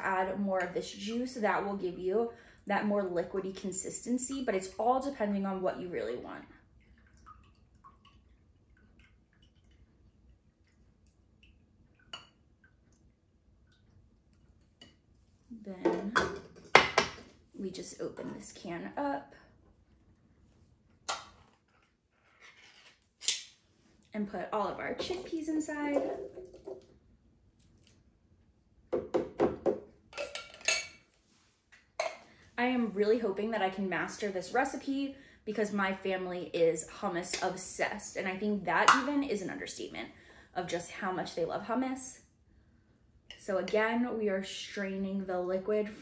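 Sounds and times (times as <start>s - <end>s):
liquid dripping into a cup: 6.6s - 14.8s.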